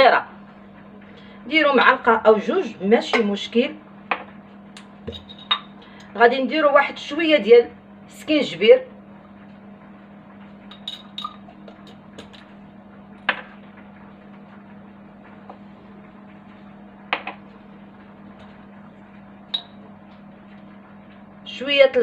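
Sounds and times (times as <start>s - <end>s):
steady low hum: 0.0s - 22.0s
spoon and jars clicking: 10.7s - 12.4s.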